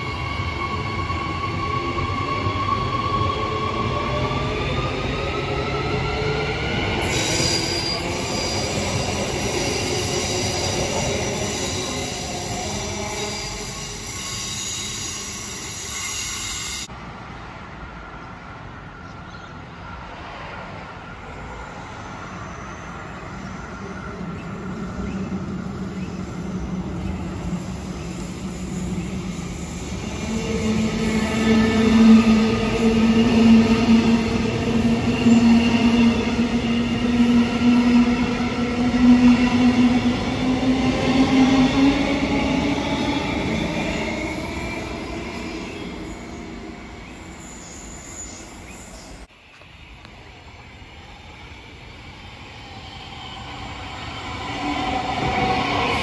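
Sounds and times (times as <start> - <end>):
electric train whine: 0.0 - 19.0.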